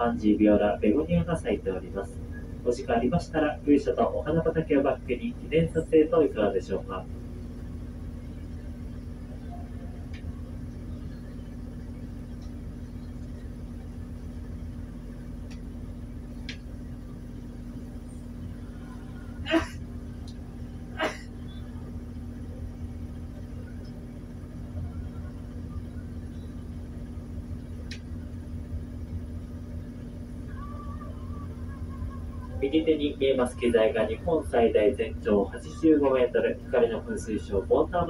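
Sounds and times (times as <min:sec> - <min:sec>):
boat engine droning: 0:00.0 - 0:38.0.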